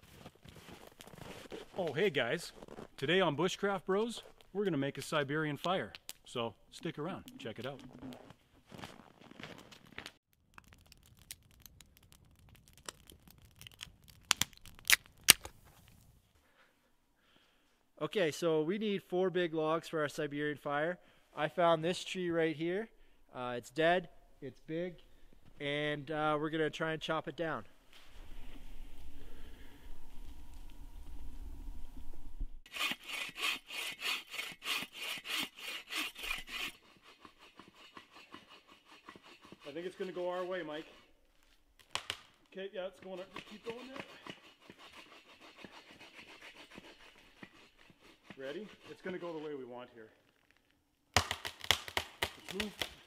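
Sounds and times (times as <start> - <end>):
wood fire crackling: 0.2 - 16.4, 24.3 - 32.6, 40.6 - 43.2, 50.2 - 53.0
faint low rumble: 27.6 - 32.6
bow saw cutting wood: 32.6 - 41.2, 42.9 - 49.7
loud sharp pops: 41.8 - 42.5, 51.1 - 53.0.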